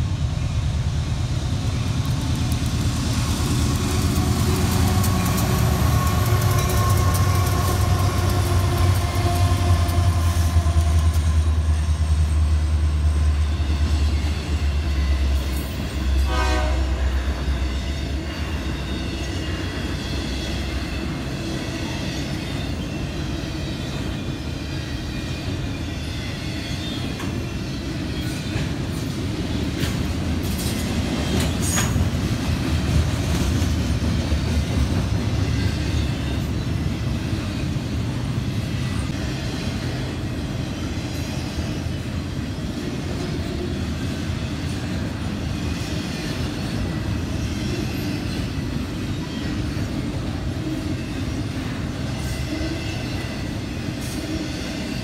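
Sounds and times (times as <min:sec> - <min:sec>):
diesel locomotive engine rumble: 0:00.0 - 0:55.0
train horn: 0:04.7 - 0:11.8, 0:14.7 - 0:19.3, 0:52.1 - 0:54.6.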